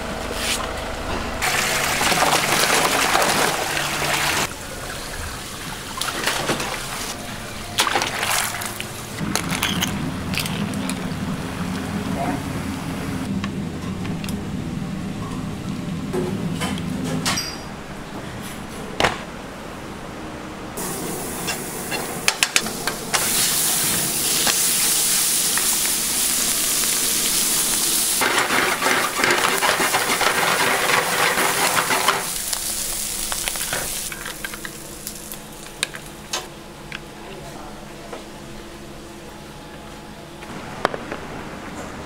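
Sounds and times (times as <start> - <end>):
seafood sizzling in a pan: 23.2 - 35.4.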